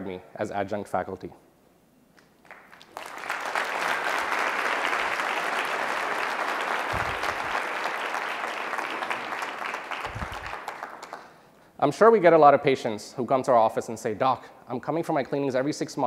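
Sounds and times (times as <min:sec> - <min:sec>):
audience applause: 0:02.4 - 0:11.3.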